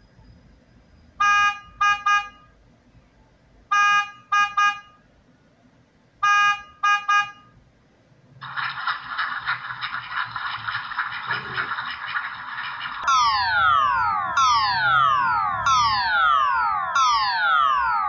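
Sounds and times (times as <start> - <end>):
steady harsh noise: 8.4 - 17.0.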